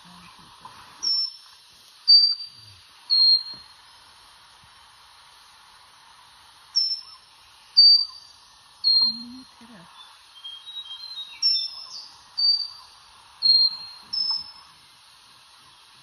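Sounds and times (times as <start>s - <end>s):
faint background hiss: 0.0s - 16.0s
bird singing high whistled notes: 1.0s - 1.5s, 2.1s - 3.8s, 6.8s - 14.7s.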